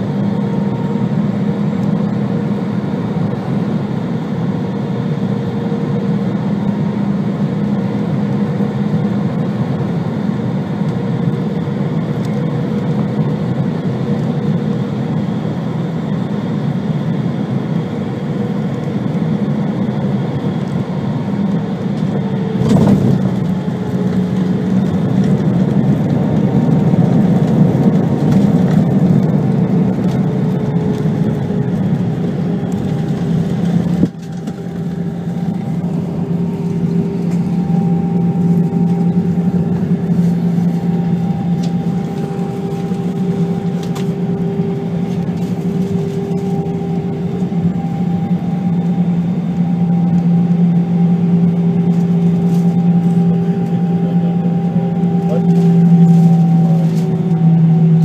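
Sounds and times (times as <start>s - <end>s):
airplane cabin engine noise: 0.0s - 58.0s.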